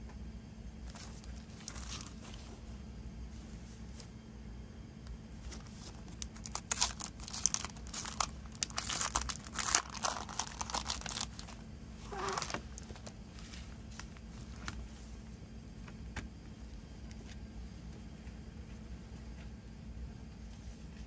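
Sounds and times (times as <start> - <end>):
soft rustle: 0.8 - 4.2, 5.3 - 15.4
plastic shrink-wrap crinkling and tearing: 0.9 - 2.2, 5.6 - 13.1.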